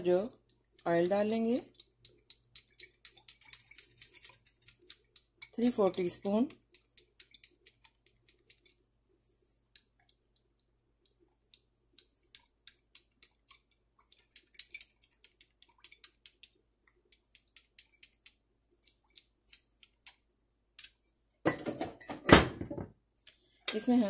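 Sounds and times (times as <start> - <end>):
oil ticking and crackling in pan: 0.0 - 20.8.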